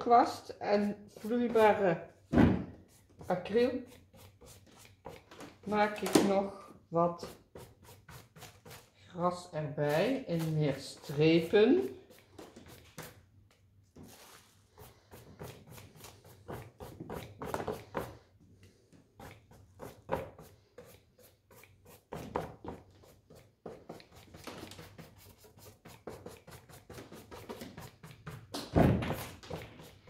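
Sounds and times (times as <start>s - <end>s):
paintbrush strokes on canvas: 14.0s - 18.2s.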